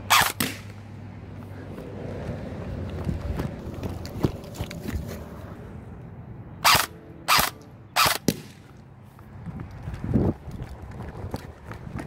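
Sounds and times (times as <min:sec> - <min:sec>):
airsoft rifle shots: 0:00.1 - 0:00.7, 0:06.6 - 0:08.6.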